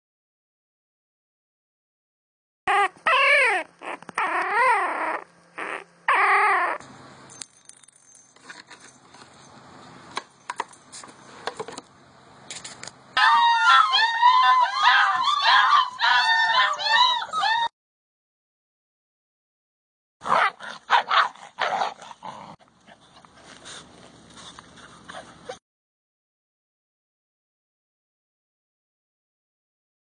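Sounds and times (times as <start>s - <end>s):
puppies whining and crying: 2.7s - 6.8s, 13.2s - 17.7s, 24.8s - 25.6s.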